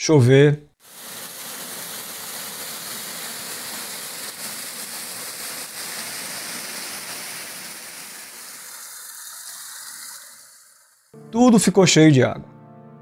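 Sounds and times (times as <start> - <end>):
waterfall pouring into a pool: 0.8 - 11.2.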